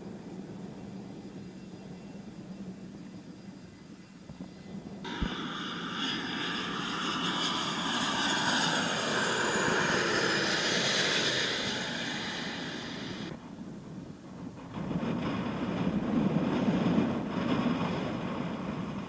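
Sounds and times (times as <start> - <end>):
jet airliner passing overhead: 4.6 - 13.4.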